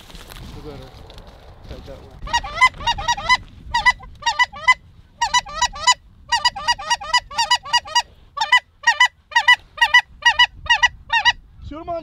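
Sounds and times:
goose honking: 2.2 - 11.4.

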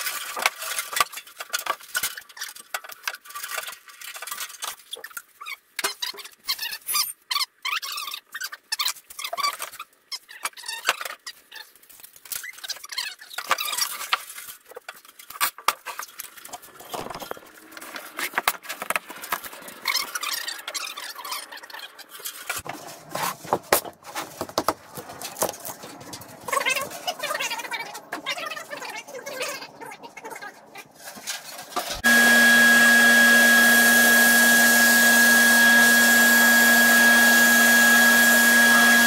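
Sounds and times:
wood scraping on metal: 22.0 - 27.4.

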